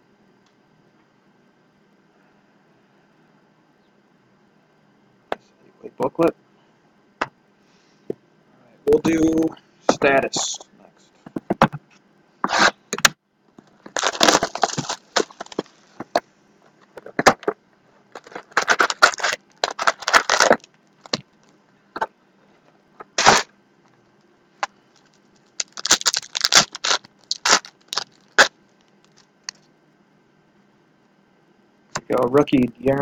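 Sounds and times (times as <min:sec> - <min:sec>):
cards sliding together: 0:12.4 - 0:12.8
foil wrappers tearing and crinkling: 0:13.9 - 0:16.0, 0:18.1 - 0:21.2, 0:23.2 - 0:23.5, 0:25.0 - 0:29.3.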